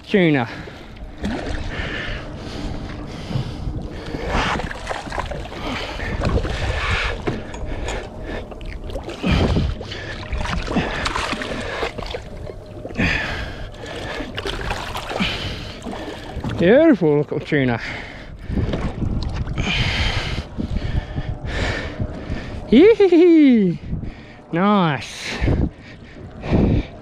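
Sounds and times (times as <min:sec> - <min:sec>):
fish splashing and thrashing in water: 0:00.8 - 0:16.7.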